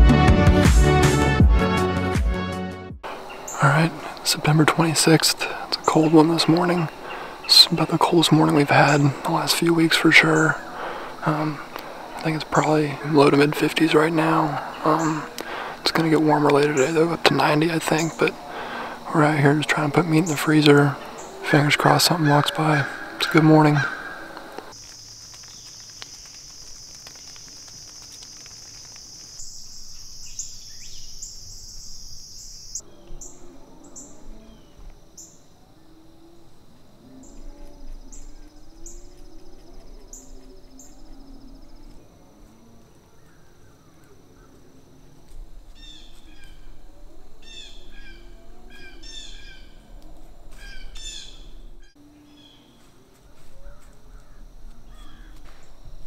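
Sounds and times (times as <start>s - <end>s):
birds chirping: 3.0s - 55.8s
bird repeated calls: 3.1s - 35.4s, 45.8s - 46.8s, 47.4s - 52.8s.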